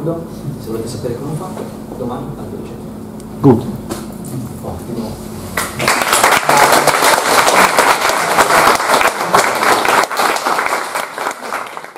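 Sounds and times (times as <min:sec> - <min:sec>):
audience applauding: 0:05.6 - 0:11.9.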